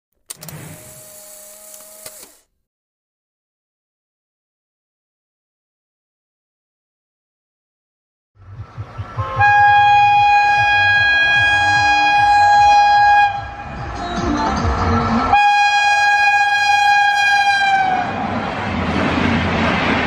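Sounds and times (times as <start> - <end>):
low rumble of train: 8.4 - 20.0
train horn long blasts: 9.2 - 13.8, 15.3 - 18.3.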